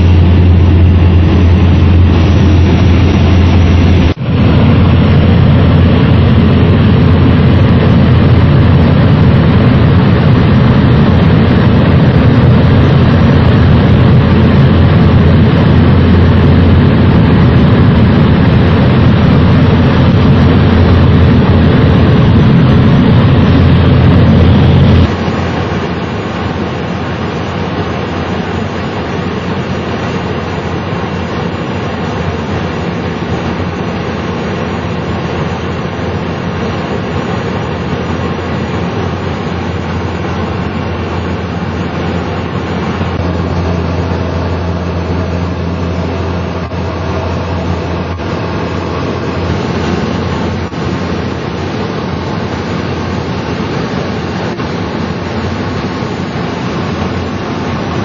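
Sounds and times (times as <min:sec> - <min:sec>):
turboprop plane droning overhead: 0:00.0 - 0:58.0.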